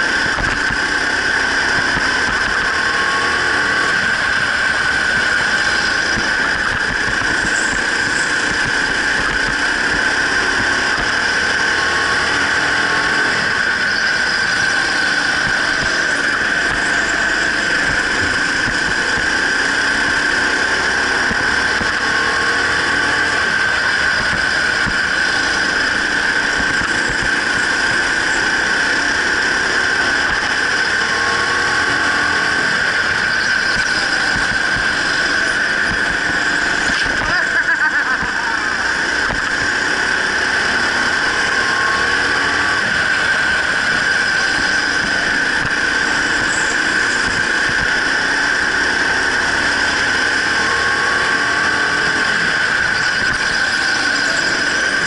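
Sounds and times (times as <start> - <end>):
go-kart high-pitched whine: 0.0 - 55.0
go-kart jolt: 0.0 - 55.0
motor and tyre noise: 0.0 - 55.0.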